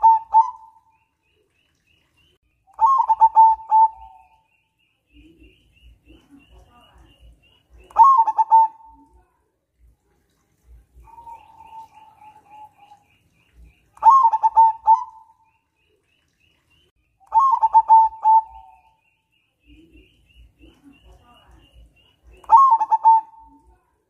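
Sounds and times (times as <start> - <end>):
dove cooing: 0.0 - 0.9, 2.8 - 4.4, 7.8 - 9.2, 11.0 - 13.1, 14.0 - 15.5, 17.3 - 19.0, 22.3 - 23.7
high bird chirping: 0.0 - 9.0, 11.0 - 23.7.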